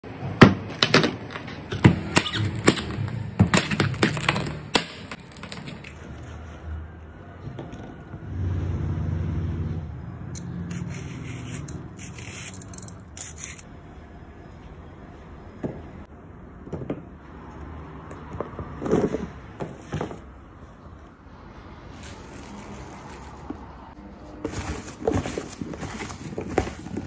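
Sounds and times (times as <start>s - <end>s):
peeler scraping plant stem: 10.4s - 13.7s.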